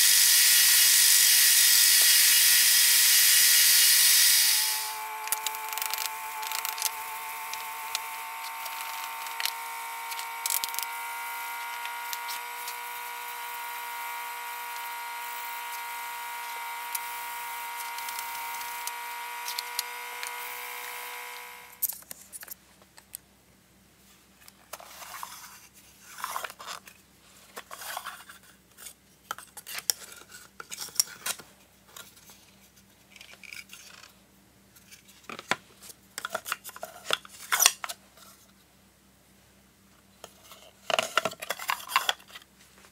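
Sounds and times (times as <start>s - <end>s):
held tones: 0.0s - 21.8s.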